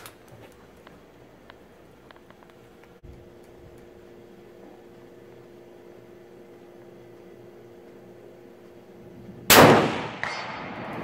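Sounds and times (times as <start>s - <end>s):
faint steady hum: 0.0s - 11.0s
rifle shot with ringing tail: 9.5s - 11.0s.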